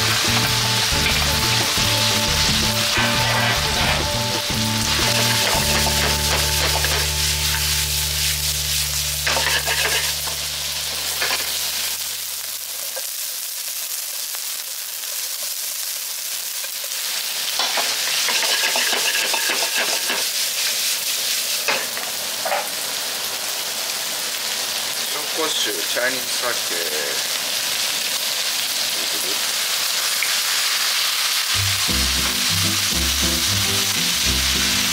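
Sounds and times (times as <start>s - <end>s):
food sizzling in a wok: 0.0s - 34.9s
utensils knocking against pan: 5.0s - 7.1s, 17.6s - 20.2s.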